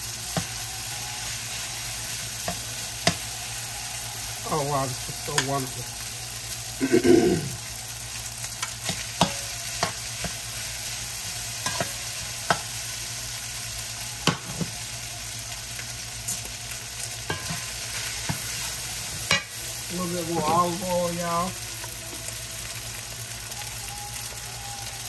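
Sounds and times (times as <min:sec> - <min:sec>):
food sizzling in a pan: 0:00.0 - 0:25.0
spatula tapping and scraping pan: 0:11.7 - 0:12.6.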